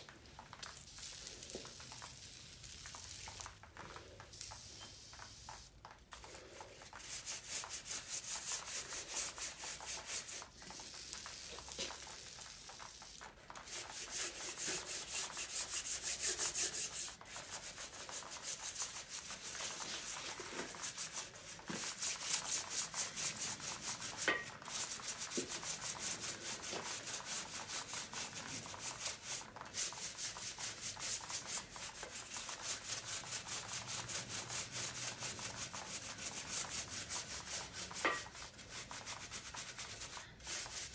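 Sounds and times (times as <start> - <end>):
brush scrubbing wet metal: 6.2 - 10.8, 13.5 - 40.9.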